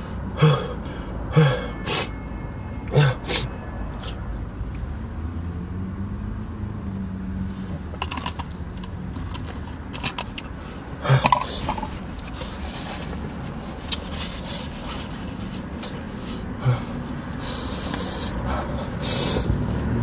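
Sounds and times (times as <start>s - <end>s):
paper towels rustling: 12.3s - 16.4s.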